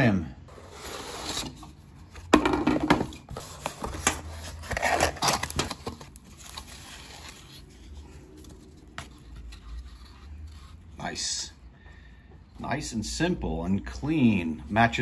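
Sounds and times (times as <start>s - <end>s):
cardboard box rustling and scraping: 3.0s - 11.0s
packing foam handling: 3.3s - 10.5s.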